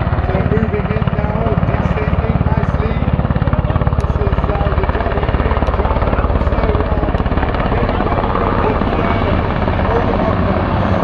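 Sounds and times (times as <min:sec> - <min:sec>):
helicopter rotor beating: 0:00.0 - 0:11.0.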